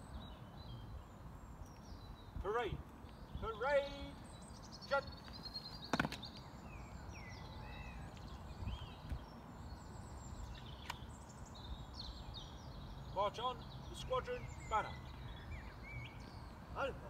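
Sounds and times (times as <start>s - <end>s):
small birds chirping: 0.0s - 17.0s
sharp knock: 5.9s - 6.2s.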